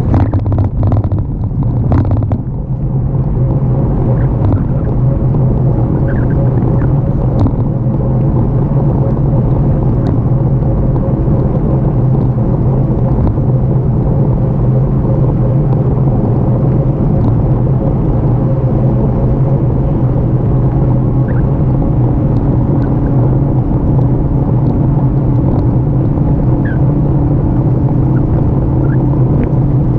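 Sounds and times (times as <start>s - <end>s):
bicycle tyres on rough asphalt: 0.0s - 15.8s
steady low hum: 0.0s - 29.9s
wind rumble on microphone: 0.0s - 29.9s.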